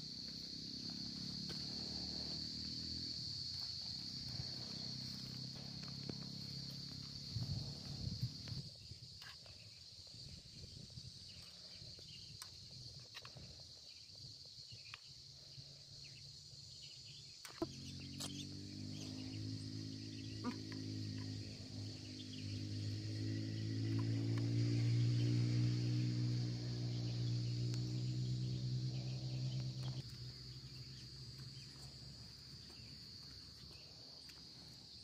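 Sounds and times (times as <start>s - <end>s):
high-pitched insect drone: 0.0s - 35.0s.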